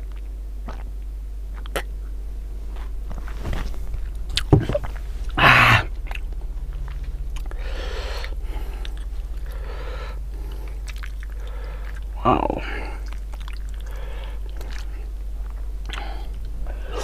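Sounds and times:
chewing and mouth clicks: 0.0s - 1.9s, 4.0s - 5.4s, 6.1s - 7.6s, 8.2s - 9.7s, 10.3s - 12.2s, 12.9s - 16.6s
steady low hum: 0.0s - 17.0s
breathy burst: 5.2s - 6.2s, 7.4s - 12.0s, 13.8s - 14.5s.

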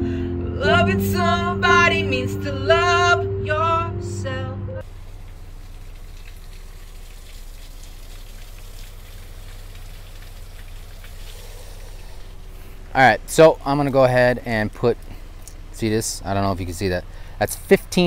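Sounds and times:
person singing over backing: 0.0s - 4.8s.

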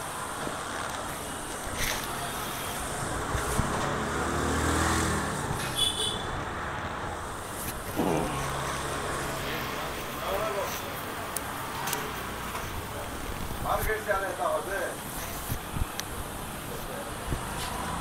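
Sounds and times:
road traffic: 0.0s - 18.0s
vehicle engine passing: 3.1s - 5.6s, 7.8s - 10.6s.

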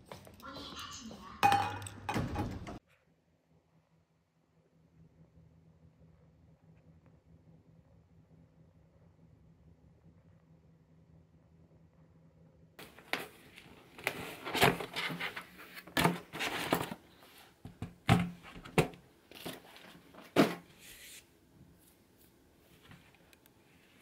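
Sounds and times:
faint handling sounds: 19.2s - 24.0s.

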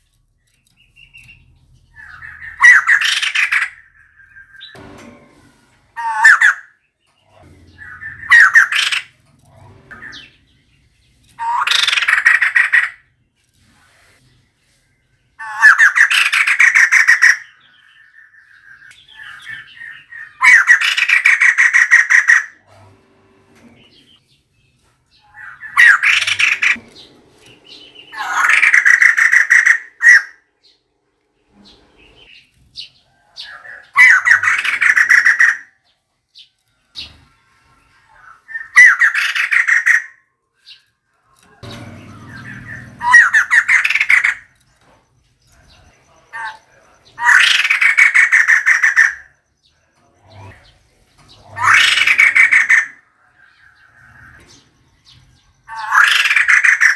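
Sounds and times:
bird harsh chattering calls: 0.8s - 4.8s, 6.0s - 13.2s, 15.4s - 22.6s, 25.1s - 30.5s, 31.6s - 35.8s, 38.1s - 40.9s, 41.5s - 44.6s, 45.6s - 56.9s.

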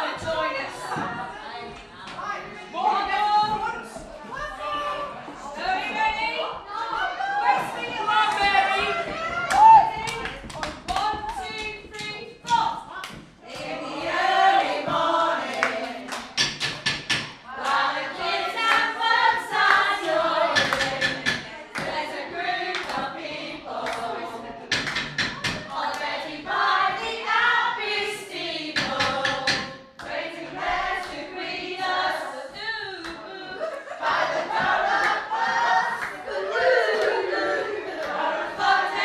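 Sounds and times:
group of voices singing: 0.0s - 39.0s
claps or stamps: 15.5s - 17.8s, 20.5s - 22.0s, 24.7s - 26.1s.

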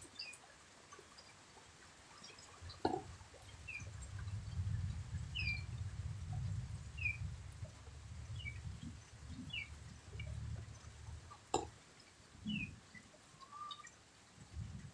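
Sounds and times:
steady low rumble: 2.6s - 11.6s.

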